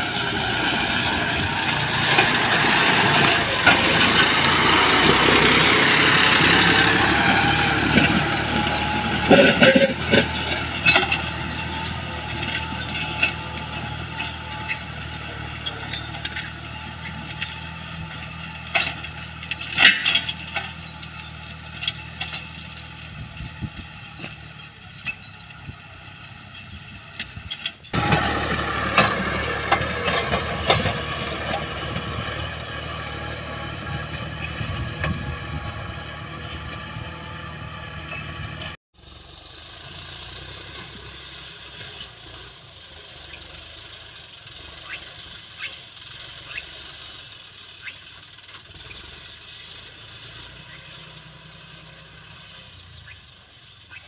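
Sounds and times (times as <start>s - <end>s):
tractor diesel engine: 0.0s - 54.0s.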